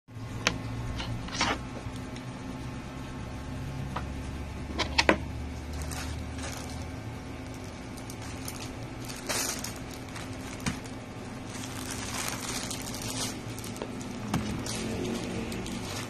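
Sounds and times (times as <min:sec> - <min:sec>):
plastic bag and bubble wrap crinkling: 0:05.6 - 0:16.0.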